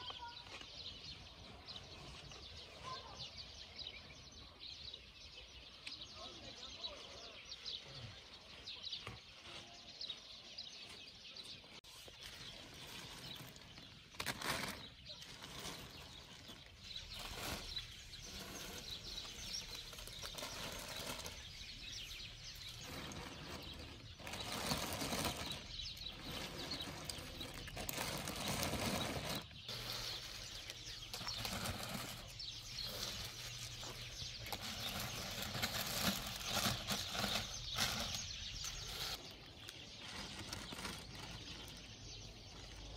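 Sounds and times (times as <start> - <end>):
rustling and scuffing: 11.8 - 42.2.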